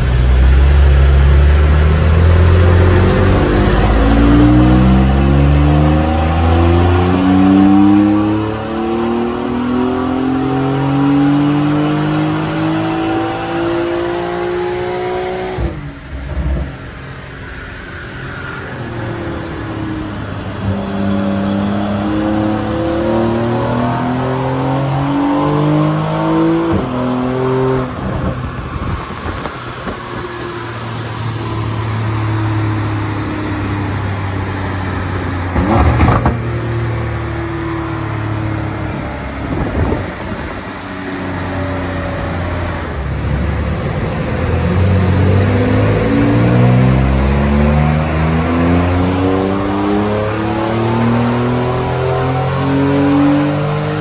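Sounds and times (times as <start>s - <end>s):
car engine accelerating through gears: 0.0s - 54.0s.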